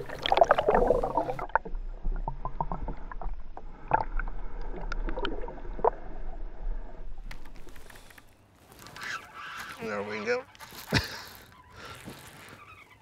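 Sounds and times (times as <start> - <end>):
low underwater rumble: 0.0 - 7.8.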